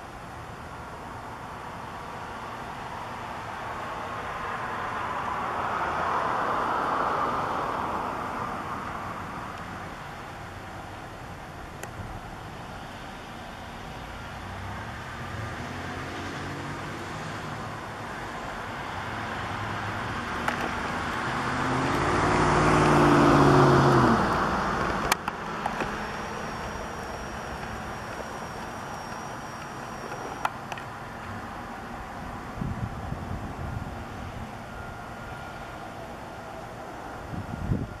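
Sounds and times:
vehicle passing by: 2.4 - 11.0, 12.4 - 38.0
thin high steady tone: 16.9 - 33.0.

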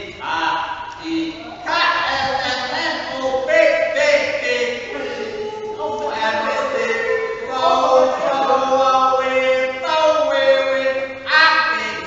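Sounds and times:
man chanting wordless tones: 0.0 - 12.0.

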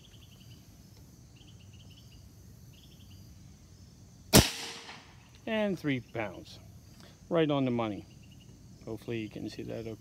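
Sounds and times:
insects chirping: 0.0 - 10.0
air rifle firing crack: 4.3 - 5.2.

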